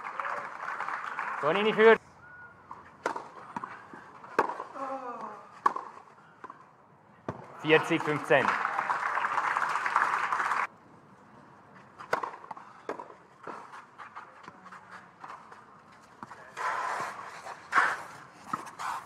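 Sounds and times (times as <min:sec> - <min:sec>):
racket striking tennis ball: 0:03.0 - 0:04.7, 0:05.6 - 0:06.0, 0:12.0 - 0:13.7.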